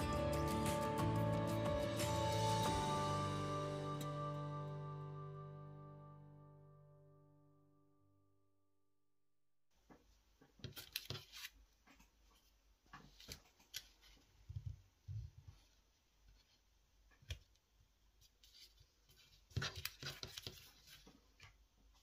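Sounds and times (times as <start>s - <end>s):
paper rustling and crinkling: 10.6s - 14.5s, 18.2s - 21.6s.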